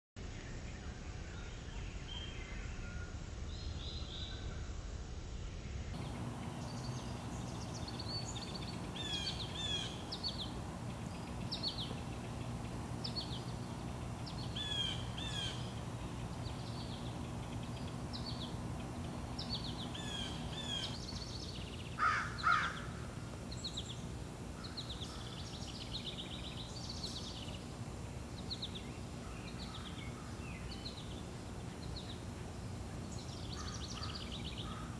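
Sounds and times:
steady low hum: 0:03.2 - 0:34.9
small birds chirping: 0:05.9 - 0:34.9.

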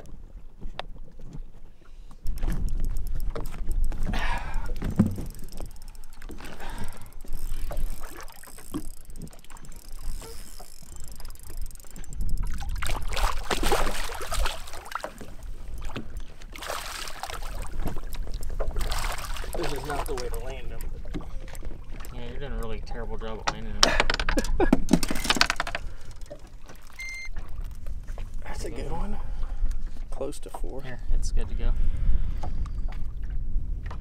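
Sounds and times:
fish splashing at water surface: 0:12.4 - 0:20.4
wind rumble on microphone: 0:27.4 - 0:34.0.

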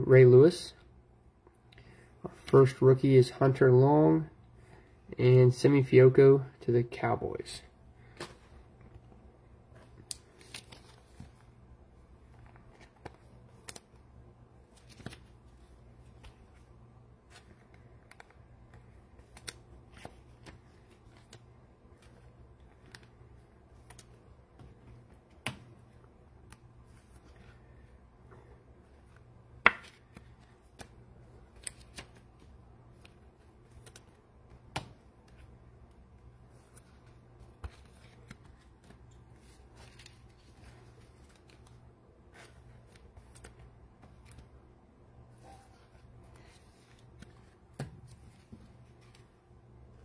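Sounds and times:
low steady hum: 0:00.0 - 0:50.0
trading cards being handled: 0:08.0 - 0:28.0, 0:28.8 - 0:44.7, 0:45.3 - 0:49.4.

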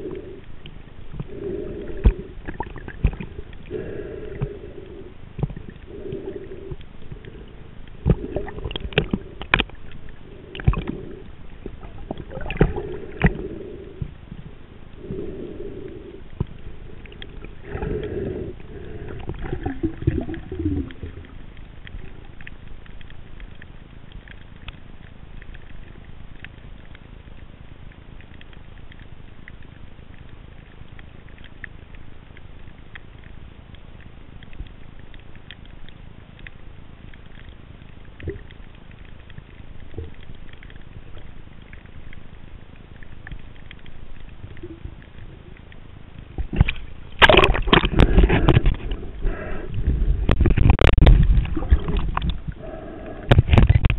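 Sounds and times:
muffled breathing through snorkel: 0:00.0 - 0:21.3, 0:47.4 - 0:53.9
faint crackling clicks underwater: 0:00.0 - 0:53.9
low rumble of moving water: 0:00.0 - 0:53.9
underwater clicks and knocks: 0:02.0 - 0:03.7, 0:05.4 - 0:13.4, 0:43.2 - 0:52.6, 0:53.2 - 0:53.9.

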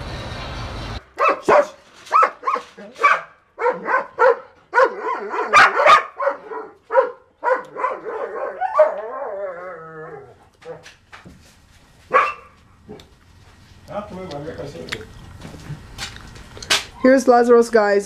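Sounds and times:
dog barking rapidly: 0:01.2 - 0:09.0, 0:12.1 - 0:13.0
dog whining: 0:07.4 - 0:10.8.

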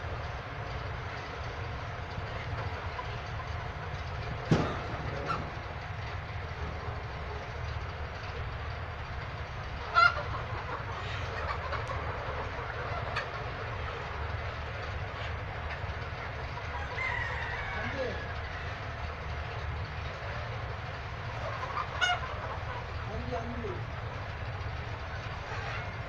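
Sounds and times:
chickens clucking: 0:00.0 - 0:26.0
chicken squawk: 0:04.6 - 0:05.8, 0:09.7 - 0:19.0, 0:20.0 - 0:23.7, 0:25.0 - 0:26.0
drawn-out falling call: 0:15.7 - 0:19.4.

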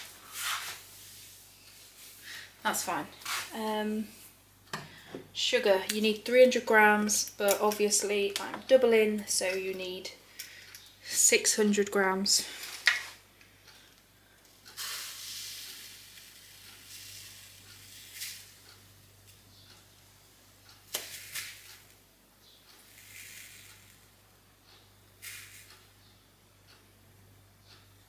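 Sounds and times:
sugar pouring into glass bowl: 0:14.9 - 0:18.5, 0:22.8 - 0:24.1.

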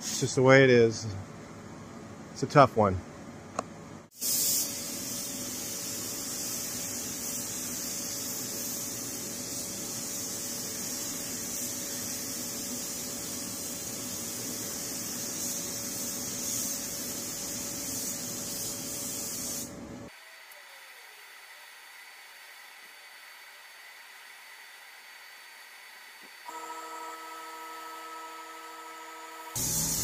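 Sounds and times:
paint spray gun hissing: 0:04.1 - 0:19.8, 0:29.5 - 0:30.0.

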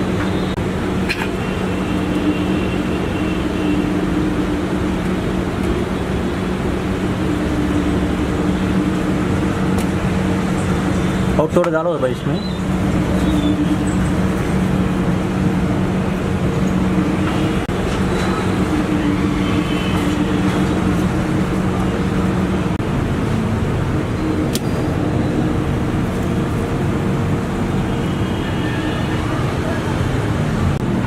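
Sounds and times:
mechanical hum: 0:00.0 - 0:11.5, 0:12.4 - 0:31.0
street traffic: 0:00.0 - 0:31.0.

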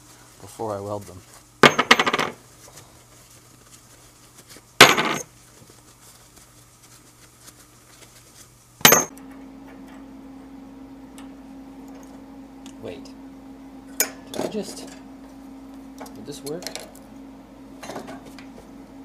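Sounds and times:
steady low hum: 0:00.0 - 0:19.0
steel washers clinking: 0:08.9 - 0:09.1.

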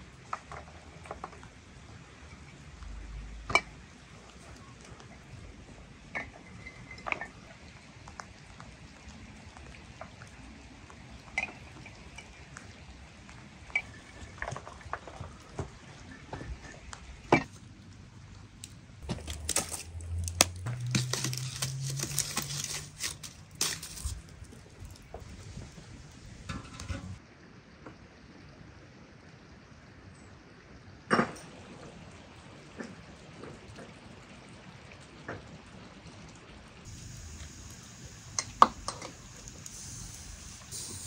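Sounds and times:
wood fire crackling and hissing: 0:00.0 - 0:27.2, 0:31.4 - 0:41.0
glass jars clinking: 0:19.1 - 0:24.2.

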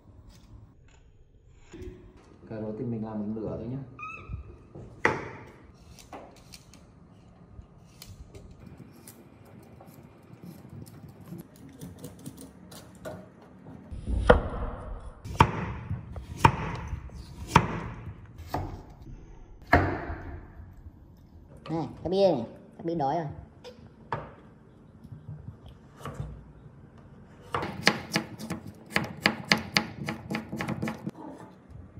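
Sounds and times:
knife chopping on cutting board: 0:27.5 - 0:31.1.

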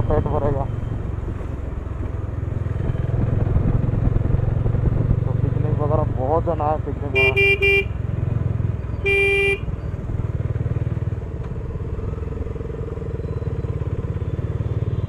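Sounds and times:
motorcycle engine running: 0:00.0 - 0:15.0
vehicle horn blast: 0:07.1 - 0:08.0, 0:09.0 - 0:09.7.

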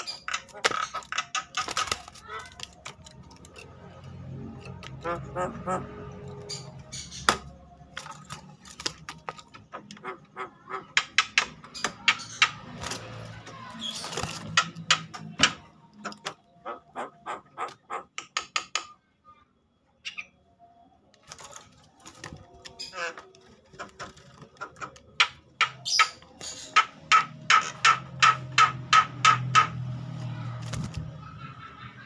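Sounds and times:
myna harsh chattering calls: 0:05.0 - 0:07.4, 0:09.7 - 0:12.8.

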